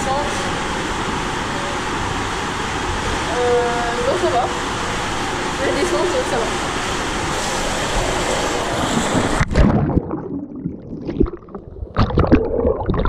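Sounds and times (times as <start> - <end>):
water rushing in slide tube: 0.0 - 10.3
underwater gurgling and bubbling: 7.2 - 13.0.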